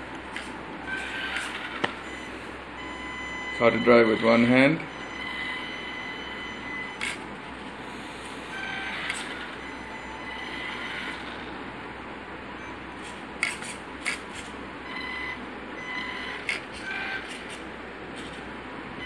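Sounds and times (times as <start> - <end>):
toy car motor whirring: 0.9 - 1.9, 8.6 - 11.5, 13.4 - 15.2.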